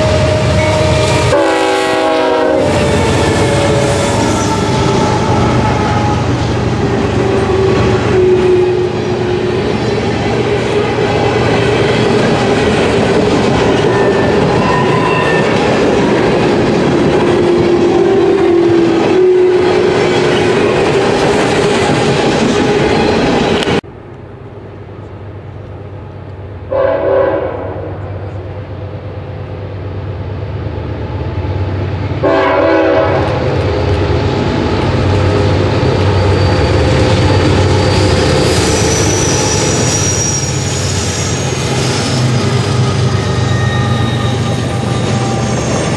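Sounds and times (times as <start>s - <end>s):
diesel train horn: 0.0s - 12.2s, 17.5s - 20.6s, 26.7s - 28.5s, 32.2s - 34.0s
locomotives rumbling: 0.0s - 23.8s
wheels squealing: 2.6s - 23.8s, 33.7s - 45.9s.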